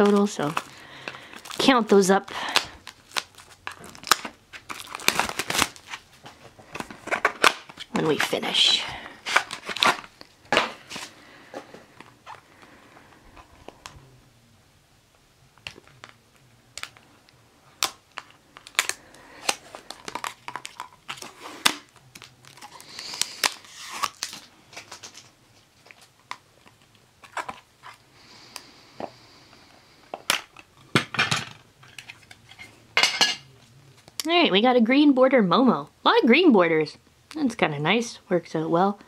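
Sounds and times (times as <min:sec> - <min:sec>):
wrapper crinkling and tearing: 0:00.0 - 0:11.2, 0:15.6 - 0:17.1, 0:17.7 - 0:28.7.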